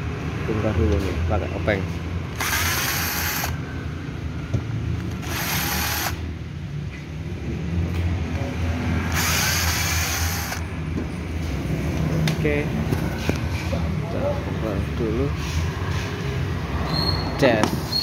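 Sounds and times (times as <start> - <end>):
cordless drill spinning: 2.3 - 3.6, 5.0 - 6.2, 9.1 - 10.6.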